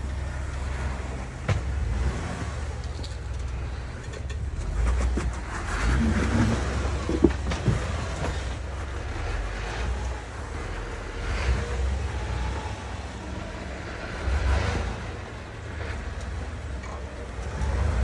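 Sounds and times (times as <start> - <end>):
engine running at low revs: 0.0 - 18.0
tyres knocking and scraping on stone: 2.9 - 8.6.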